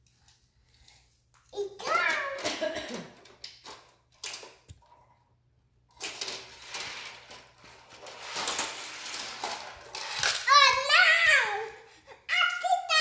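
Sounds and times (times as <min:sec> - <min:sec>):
plastic toy pieces clicking and rattling: 0:01.8 - 0:04.9, 0:05.9 - 0:11.2.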